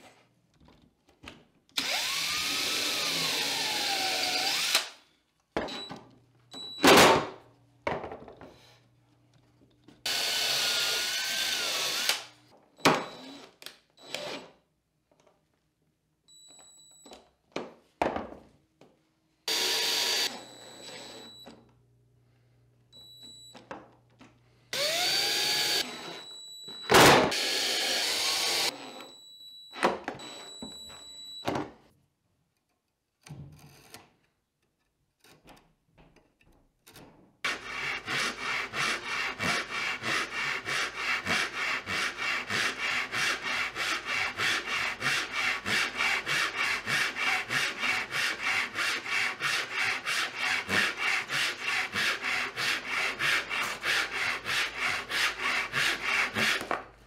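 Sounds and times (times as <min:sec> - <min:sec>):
cordless drill whining: 0:01.8 - 0:05.0, 0:10.1 - 0:12.3, 0:19.5 - 0:21.4, 0:24.7 - 0:26.3, 0:27.3 - 0:29.1
hand saw cutting wood: 0:37.5 - 0:56.8.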